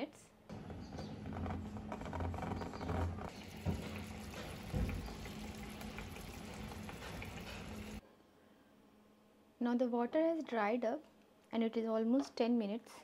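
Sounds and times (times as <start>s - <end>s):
water boiling in covered pot: 1.5s - 8.0s.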